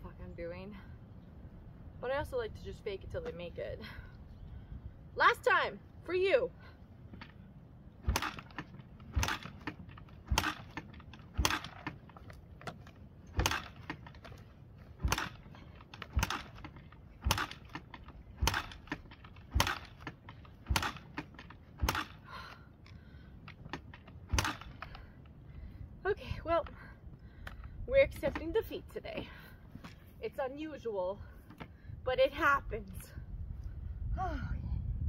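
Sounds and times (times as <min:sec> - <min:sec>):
kick-starter clacking: 0:08.1 - 0:22.2.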